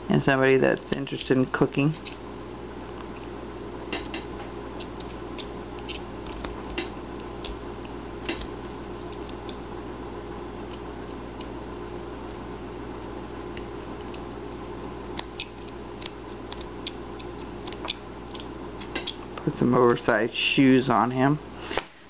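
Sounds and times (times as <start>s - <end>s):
low steady hum: 0.0s - 22.0s
carving knife cutting wood: 4.8s - 9.6s.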